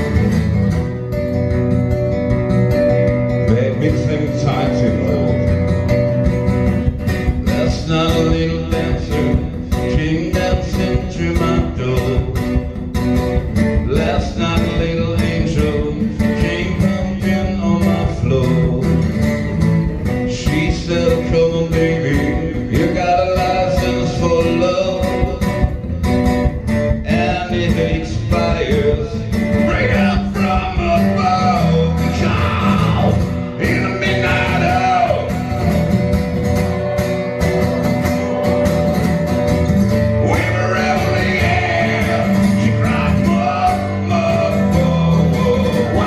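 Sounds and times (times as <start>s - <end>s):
acoustic guitars strummed: 0.0s - 46.0s
person singing through pa: 3.4s - 5.5s, 7.3s - 19.3s, 19.9s - 25.8s, 26.8s - 35.6s, 40.1s - 46.0s.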